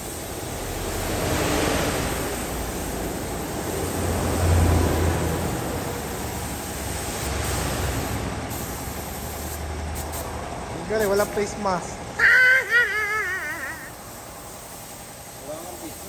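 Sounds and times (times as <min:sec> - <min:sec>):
paint spray gun hissing: 0:00.0 - 0:00.8, 0:02.2 - 0:04.5, 0:05.5 - 0:07.6, 0:08.5 - 0:11.5, 0:12.2 - 0:16.0.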